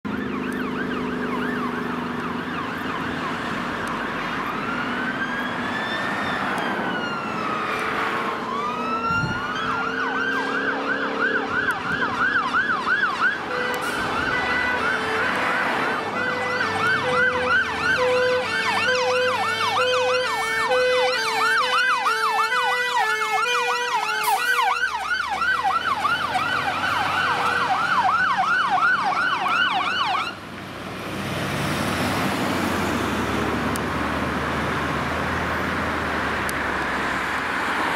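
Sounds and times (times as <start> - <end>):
fire engine siren: 0.0 - 37.9
two-note hi-lo siren: 0.1 - 3.2, 3.9 - 30.4.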